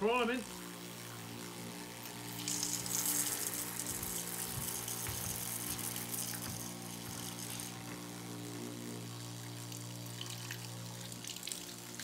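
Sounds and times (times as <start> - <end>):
water pump humming: 0.0 - 12.0
water hissing and spraying: 2.3 - 8.0.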